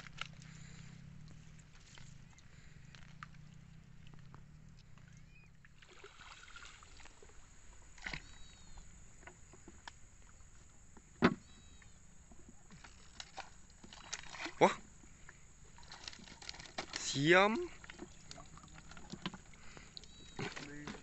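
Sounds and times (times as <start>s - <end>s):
boat poled through grass: 0.0s - 21.0s.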